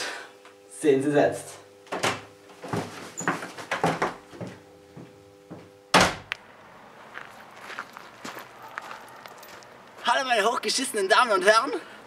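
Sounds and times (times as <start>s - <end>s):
door slamming shut: 1.9s - 4.2s, 5.9s - 6.3s
door knocks and rattles: 1.9s - 6.3s.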